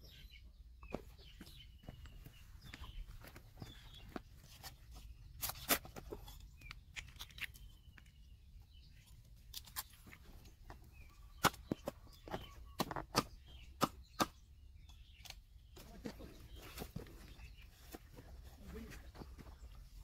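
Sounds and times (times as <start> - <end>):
cleaver chopping on wooden block: 11.4 - 14.4.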